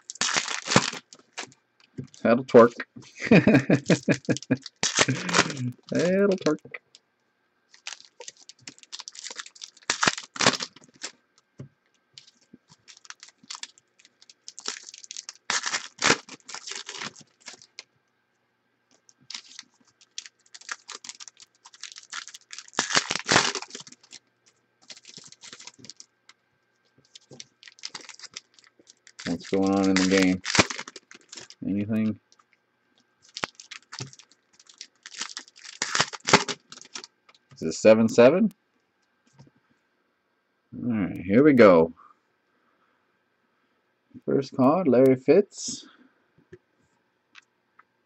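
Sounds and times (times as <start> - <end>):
wrappers crinkling and tearing: 0.0 - 2.2, 3.2 - 6.6, 7.7 - 11.2, 12.2 - 17.9, 19.0 - 26.1, 27.0 - 31.6, 33.2 - 37.6.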